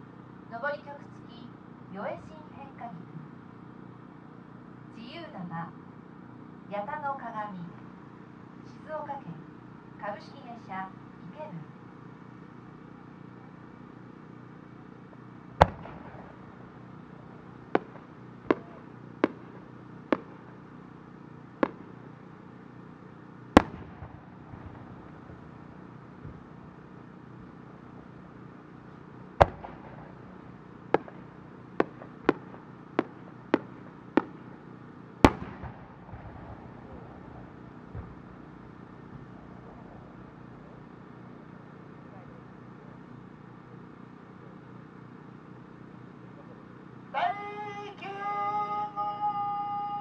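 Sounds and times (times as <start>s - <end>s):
firework booms with echo: 15.6s - 16.8s, 17.7s - 20.6s, 21.6s - 22.0s, 23.5s - 26.6s, 29.4s - 34.6s, 35.2s - 40.8s
light firework bangs: 15.6s - 20.6s, 21.6s - 22.2s, 23.5s - 26.6s, 29.4s - 40.0s.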